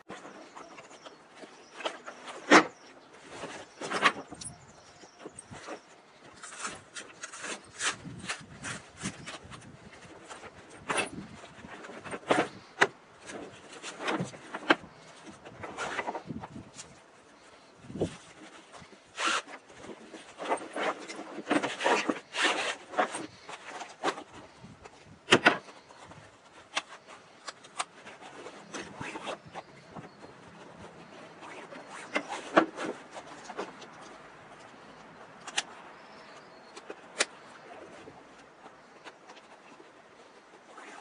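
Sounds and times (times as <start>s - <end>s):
fabric and webbing rustling: 0.0s - 41.0s.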